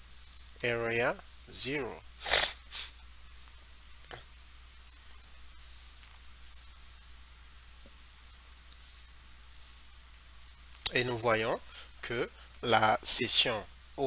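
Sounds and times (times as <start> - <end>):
short breath-like hiss: 2.2 - 3.0.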